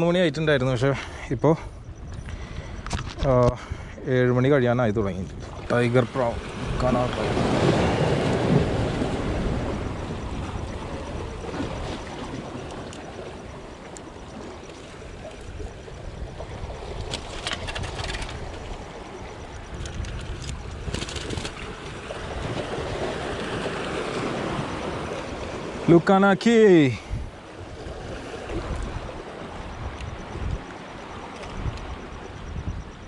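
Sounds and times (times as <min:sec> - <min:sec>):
wind buffeting microphone: 0:04.8 - 0:25.9, 0:26.9 - 0:33.0
sea water washing: 0:05.4 - 0:32.5
short clicks and rattles: 0:17.0 - 0:18.6.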